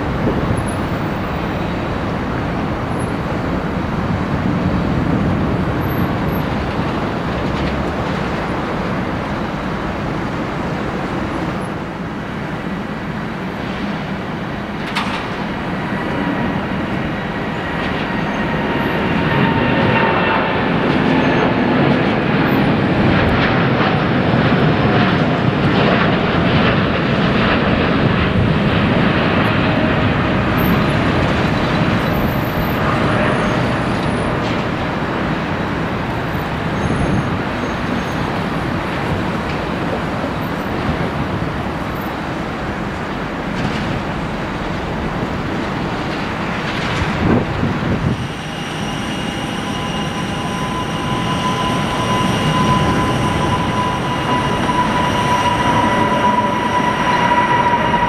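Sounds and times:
jet engine roar: 0:00.0 - 0:58.0
steady high tones: 0:48.1 - 0:58.0.

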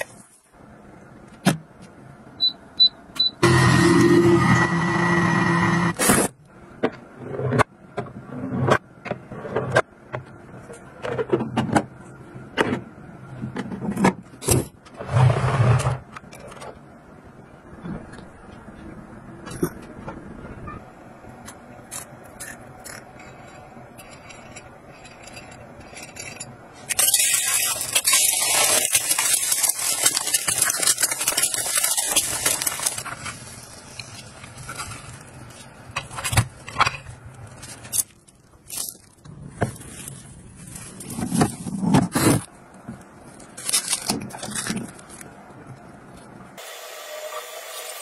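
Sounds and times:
loud hiss and crackle: 0:26.9 - 0:35.1.

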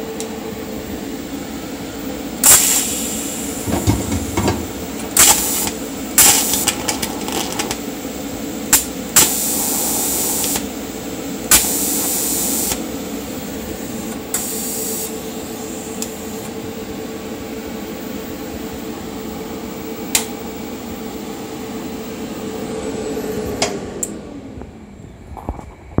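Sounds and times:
welder humming: 0:00.0 - 0:16.4
welding arc hiss: 0:02.4 - 0:07.9, 0:08.7 - 0:10.8, 0:11.5 - 0:13.0, 0:13.6 - 0:16.2.

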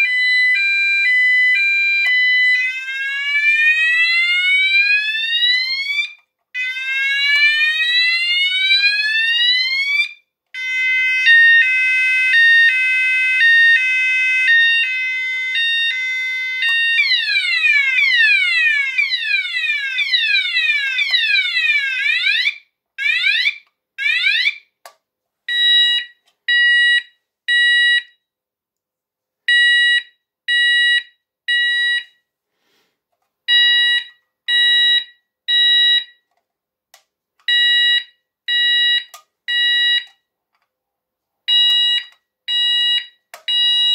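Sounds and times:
electronic fire alarm tones: 0:41.5 - 0:43.9.

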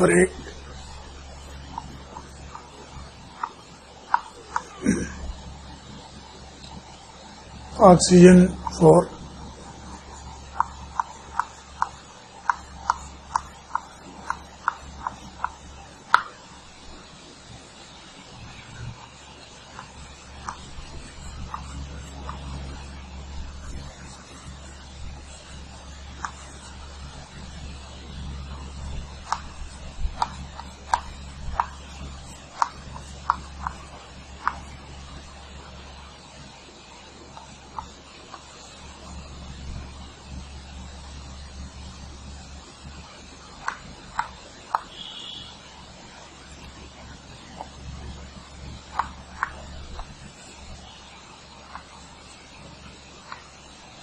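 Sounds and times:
steady low hum: 0:00.0 - 0:54.0
chalk clicking on blackboard: 0:01.7 - 0:04.8, 0:09.5 - 0:16.4, 0:19.0 - 0:36.1, 0:43.6 - 0:45.5, 0:48.8 - 0:54.0.

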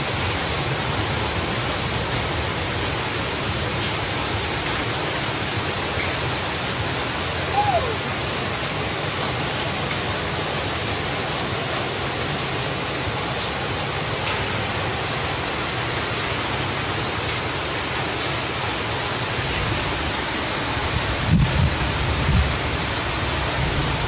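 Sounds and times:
heavy rain falling: 0:00.0 - 0:24.0.

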